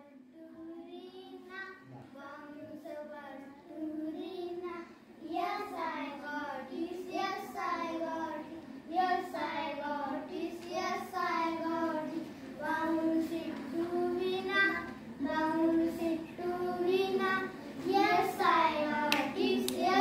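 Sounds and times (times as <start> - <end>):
children singing a rhyme: 0.0 - 20.0.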